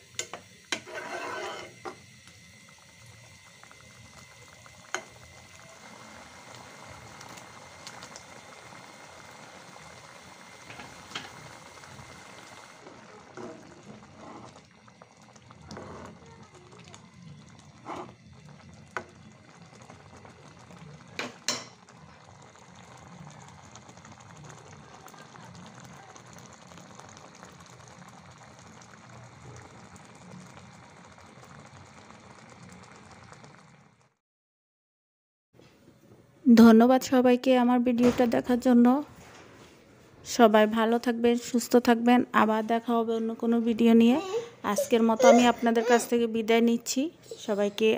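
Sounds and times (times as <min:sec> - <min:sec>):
dal bubbling in a pan: 0:00.0 - 0:34.2.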